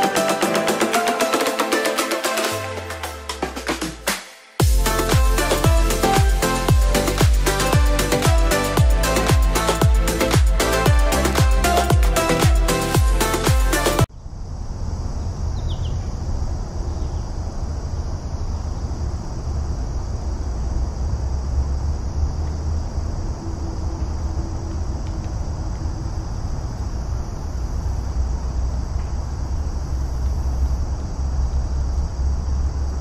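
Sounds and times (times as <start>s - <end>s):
continuous high hiss: 4.6s - 33.0s
low rumble: 14.1s - 33.0s.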